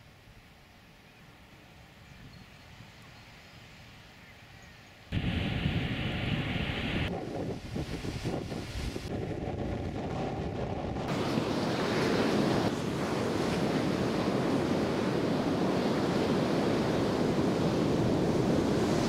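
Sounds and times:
surf washing up beach: 0:05.1 - 0:19.0
wind buffeting microphone: 0:05.1 - 0:19.0.

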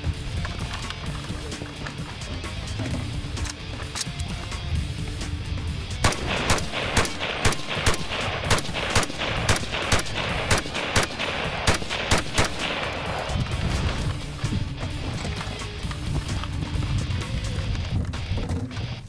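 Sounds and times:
background music: 0:00.0 - 0:19.0
rifle shots: 0:06.0 - 0:14.2.

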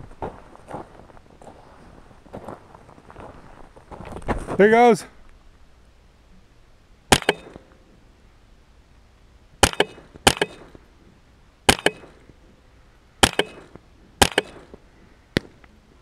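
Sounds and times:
rifle shots with echo: 0:07.1 - 0:07.7, 0:09.6 - 0:10.8, 0:11.7 - 0:12.3, 0:13.2 - 0:14.8.

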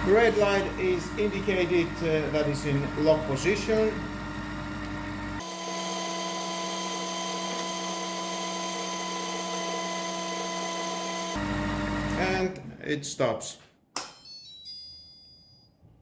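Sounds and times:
food processor motor whine: 0:00.0 - 0:12.3.

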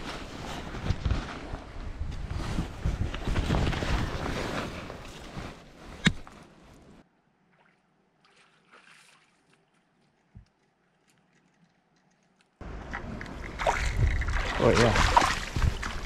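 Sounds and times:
wind on microphone: 0:12.8 - 0:16.0.

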